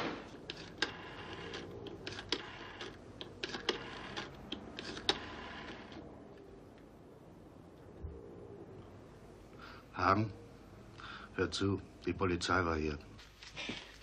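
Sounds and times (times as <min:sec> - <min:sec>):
rotary dial ticking: 0:00.4 - 0:06.9
telephone dial click: 0:00.5 - 0:06.0.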